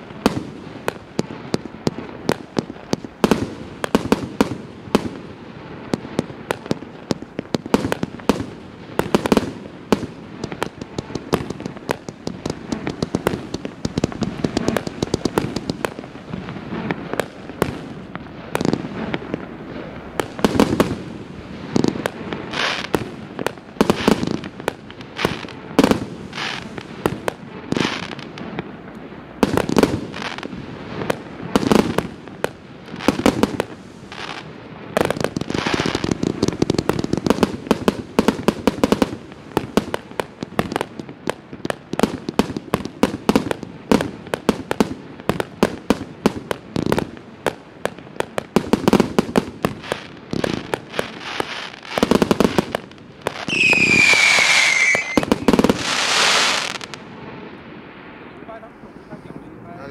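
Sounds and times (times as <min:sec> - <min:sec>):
firework shots and bursts: 0:00.0 - 0:57.5
firework whistling tone: 0:53.3 - 0:57.3.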